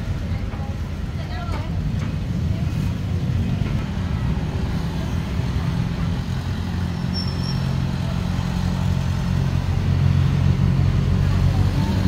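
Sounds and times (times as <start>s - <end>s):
street traffic: 0.0s - 12.0s
short high squeak: 7.0s - 7.8s.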